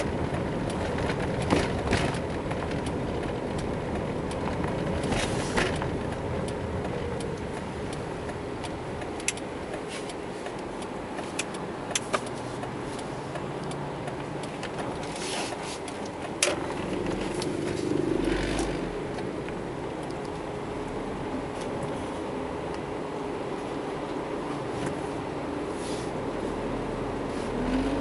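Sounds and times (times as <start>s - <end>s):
car engine and road noise: 0.0s - 28.0s.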